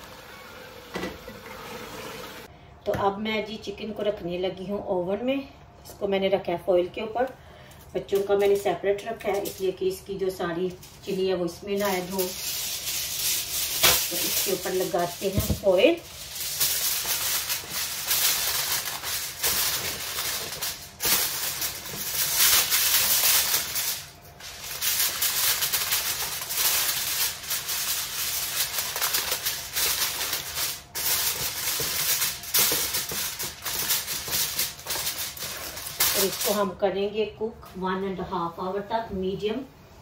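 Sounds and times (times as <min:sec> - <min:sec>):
aluminium foil crinkling: 0:07.6 - 0:36.8.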